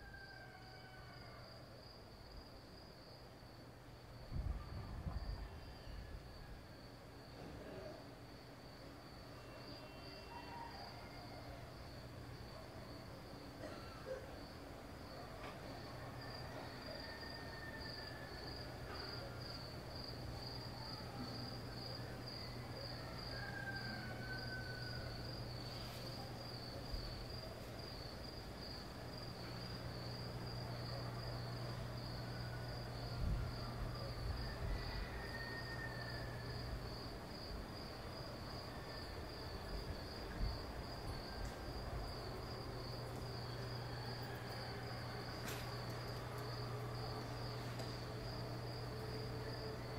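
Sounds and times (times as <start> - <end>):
cicadas buzzing: 19.4 - 49.9.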